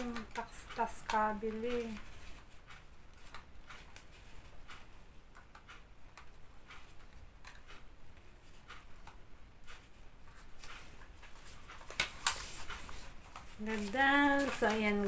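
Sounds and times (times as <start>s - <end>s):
paper rustling: 9.7s - 15.0s.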